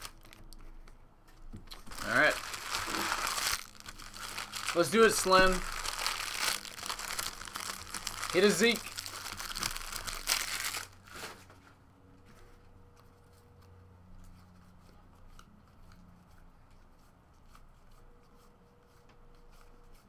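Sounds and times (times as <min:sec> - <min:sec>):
cards rustling: 0:01.7 - 0:11.4.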